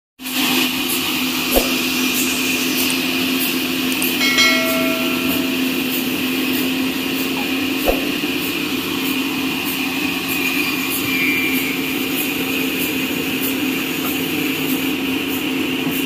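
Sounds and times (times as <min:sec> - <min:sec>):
band sawmill humming and hissing: 0:00.2 - 0:16.0.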